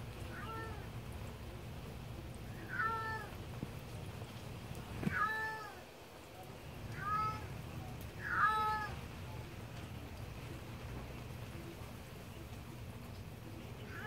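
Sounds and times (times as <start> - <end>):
cat meowing: 0.3 - 0.9, 2.5 - 3.4, 5.0 - 5.8, 6.9 - 7.5, 8.2 - 9.0.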